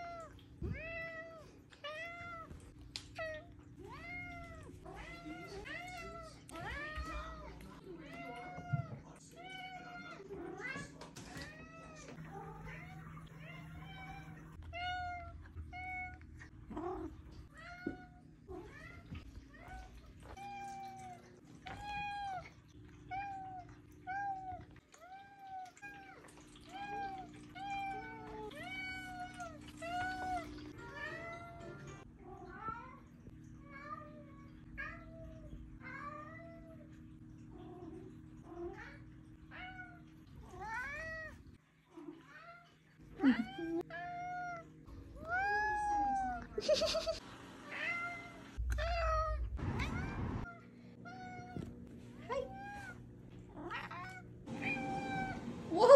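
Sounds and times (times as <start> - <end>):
cat meowing: 43.3 - 51.7, 53.6 - 55.4
low hum: 48.6 - 53.3.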